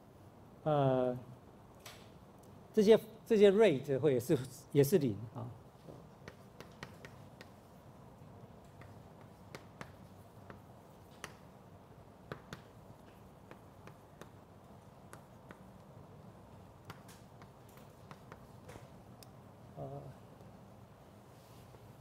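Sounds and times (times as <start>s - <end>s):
chalk tapping on blackboard: 6.2s - 7.8s, 8.7s - 11.5s, 12.2s - 15.9s, 16.8s - 18.8s.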